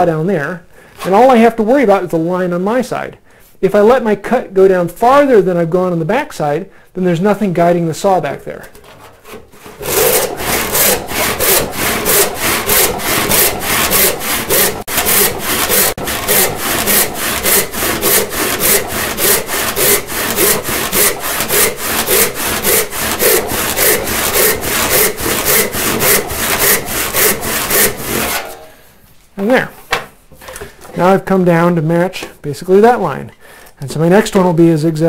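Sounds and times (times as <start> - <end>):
hand saw cutting wood: 8.8 - 28.7.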